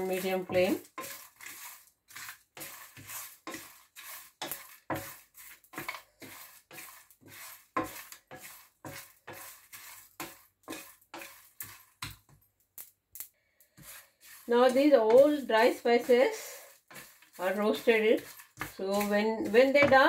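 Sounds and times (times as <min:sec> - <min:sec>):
wooden spatula scraping spices in pan: 0:00.0 - 0:12.4, 0:13.3 - 0:20.0.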